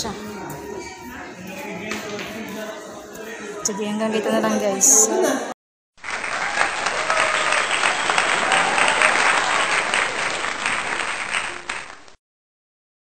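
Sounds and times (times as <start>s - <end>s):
dense applause: 6.0s - 12.2s.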